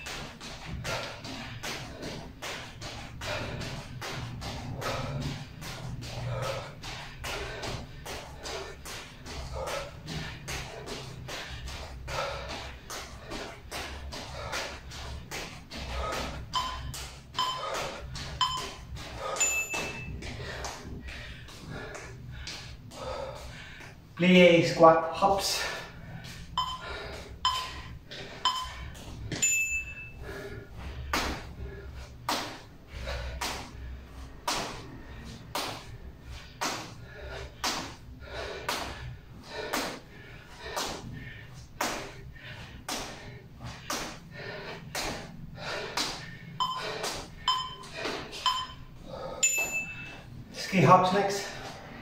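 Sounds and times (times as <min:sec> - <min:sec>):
person breathing hard: 0:00.0 - 0:52.0
higher timer beep: 0:16.5 - 0:20.2, 0:26.6 - 0:26.8, 0:27.4 - 0:27.8, 0:28.4 - 0:28.8, 0:29.4 - 0:30.2, 0:46.6 - 0:50.2
short timer beeps: 0:16.6 - 0:17.7, 0:18.4 - 0:18.8, 0:26.6 - 0:26.8, 0:27.4 - 0:27.7, 0:28.4 - 0:28.8, 0:46.6 - 0:50.1.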